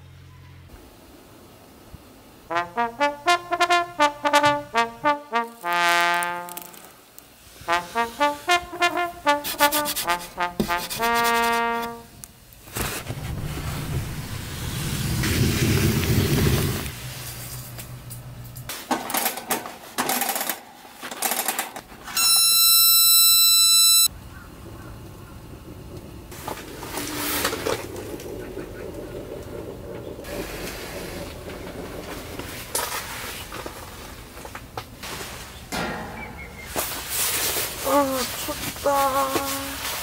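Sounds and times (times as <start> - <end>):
brass music: 2.5 - 6.9, 7.5 - 12.3
rustling noise: 2.5 - 18.9, 26.2 - 35.7, 36.5 - 40.0
loud steady buzzing tone: 22.2 - 24.2.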